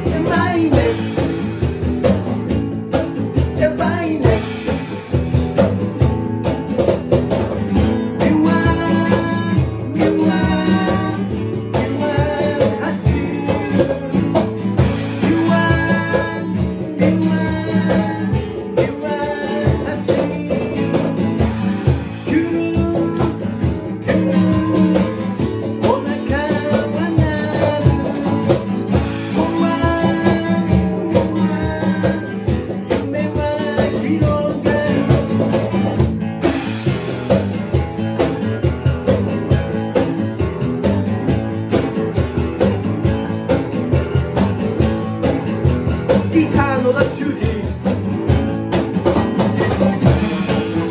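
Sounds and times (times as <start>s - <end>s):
person singing: 0.0s - 1.4s, 3.4s - 4.8s, 8.0s - 35.7s, 46.1s - 48.0s
cajon beat: 0.0s - 50.9s
guitars playing: 0.0s - 50.9s.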